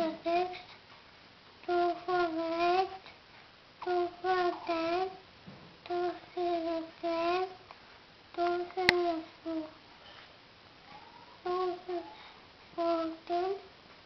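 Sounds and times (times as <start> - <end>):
child chanting sing-song: 0.0 - 0.8, 1.6 - 3.1, 3.8 - 5.2, 5.9 - 7.7, 8.3 - 9.8, 11.0 - 13.7.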